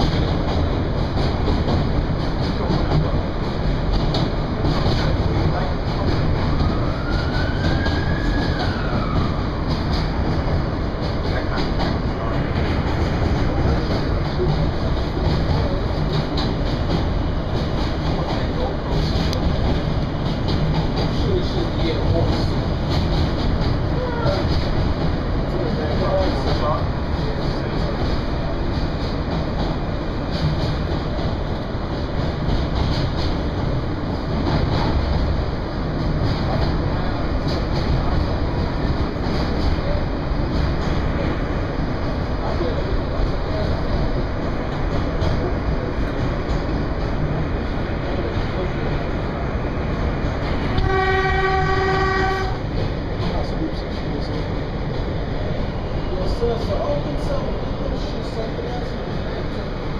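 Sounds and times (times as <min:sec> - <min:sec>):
subway train rumbling: 0:00.0 - 0:59.9.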